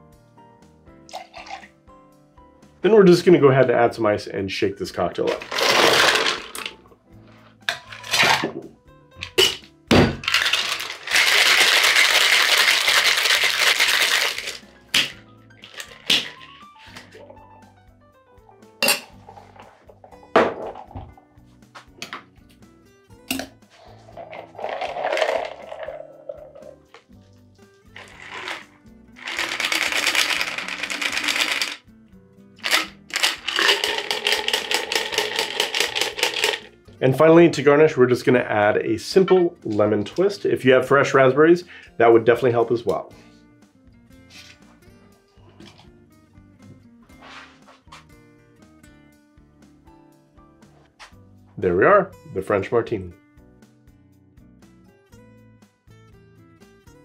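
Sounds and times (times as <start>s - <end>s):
background music: 0.0s - 57.0s
liquid pouring: 1.1s - 1.7s, 5.3s - 6.8s, 23.8s - 27.0s, 27.9s - 31.8s, 32.6s - 36.7s
ice cubes clattering into metal tin: 5.2s - 6.8s, 7.7s - 8.6s, 9.2s - 16.5s, 24.0s - 26.8s, 28.0s - 31.8s, 32.6s - 36.7s
ice rattling in shaker: 5.3s - 6.8s, 10.2s - 16.5s, 23.9s - 27.0s, 27.9s - 31.8s, 32.6s - 36.7s
shaker tins knocking: 9.3s - 16.4s, 24.1s - 26.8s, 28.0s - 31.8s, 32.6s - 36.7s.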